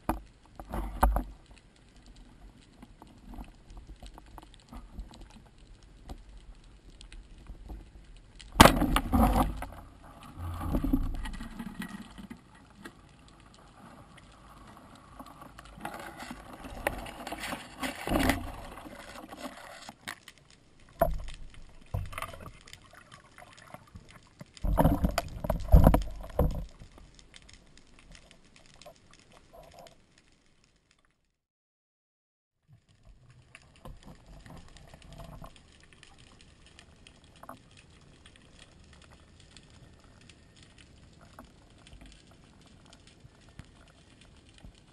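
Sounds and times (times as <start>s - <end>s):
water sloshing and splashing: 0.0s - 30.0s.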